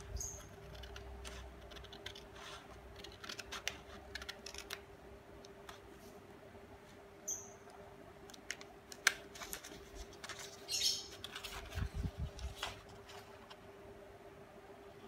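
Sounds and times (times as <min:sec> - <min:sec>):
paper rustling: 0:00.4 - 0:04.8, 0:09.0 - 0:13.6
scissors snipping paper: 0:00.4 - 0:04.8.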